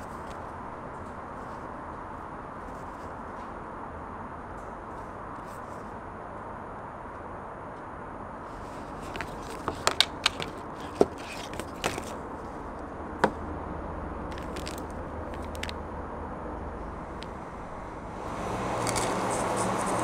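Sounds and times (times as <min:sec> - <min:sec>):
outdoor background hum: 0:00.0 - 0:20.0
foil sachet crinkling: 0:14.3 - 0:15.7
plastic lid clicks and knocks: 0:14.3 - 0:15.8.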